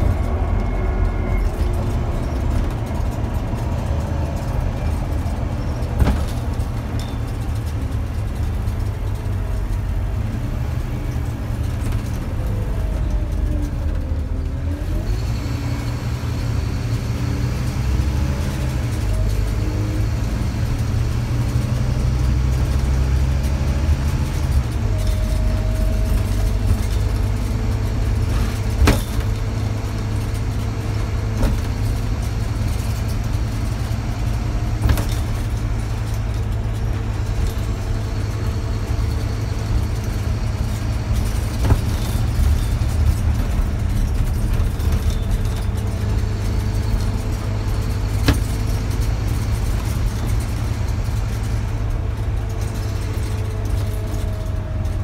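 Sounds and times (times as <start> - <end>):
bus diesel engine rumbling: 0.0 - 55.0
sharp knocks from bus body: 5.9 - 6.6, 28.2 - 29.4, 31.4 - 32.0, 34.7 - 35.5, 41.2 - 42.4, 48.2 - 48.8.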